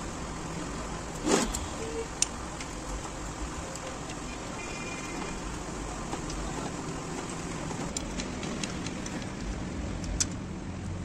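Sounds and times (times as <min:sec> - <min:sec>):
steady background hiss: 0:00.0 - 0:08.0.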